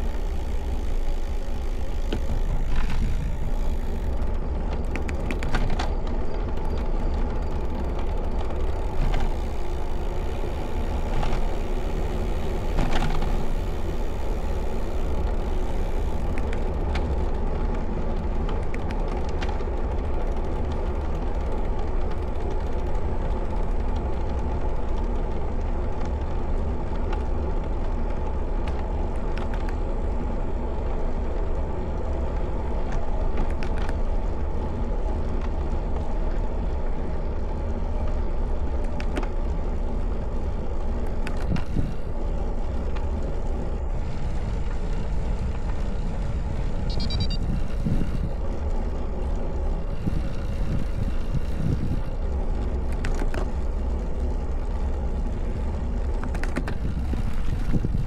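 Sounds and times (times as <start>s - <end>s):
tyre noise on pavement: 0.0s - 58.0s
wind rushing over microphone: 40.6s - 52.8s, 55.3s - 58.0s.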